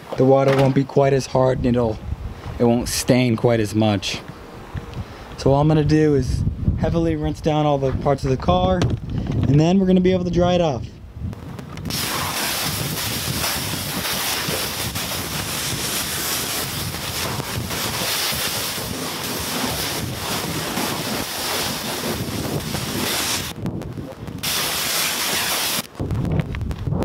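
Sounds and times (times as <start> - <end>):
hose spraying water: 11.9 - 23.6, 24.4 - 25.9.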